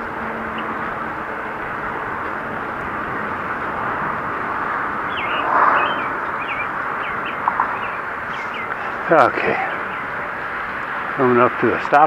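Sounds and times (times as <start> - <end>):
wind over microphone: 0.0 - 11.2
bicycle tyres rolling: 0.0 - 12.0
small bird chirping: 5.1 - 8.8.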